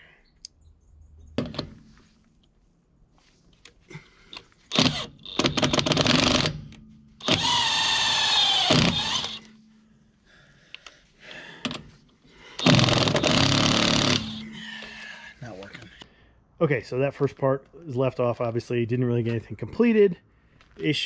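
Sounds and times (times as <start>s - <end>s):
impact wrench hammering: 4.7s - 9.6s, 12.6s - 14.6s.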